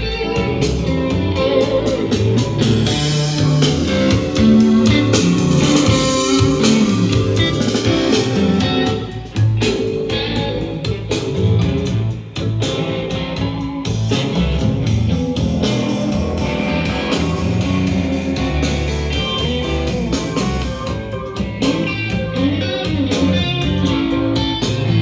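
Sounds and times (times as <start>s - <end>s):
guitar music with drums: 0.0s - 25.0s.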